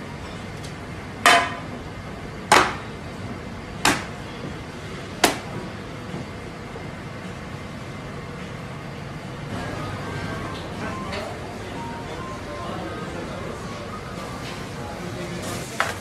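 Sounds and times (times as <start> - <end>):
slaps on metal tray: 3.8 - 4.1, 5.2 - 5.5.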